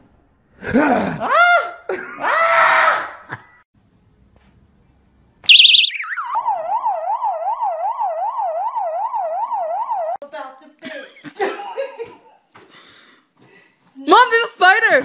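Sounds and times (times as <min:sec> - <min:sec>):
electronic siren alarm wailing: 0:05.5 - 0:10.2.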